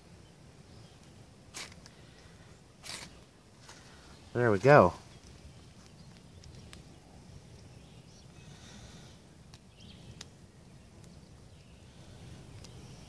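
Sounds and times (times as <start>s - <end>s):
twine burning with faint crackles: 0.0s - 13.0s.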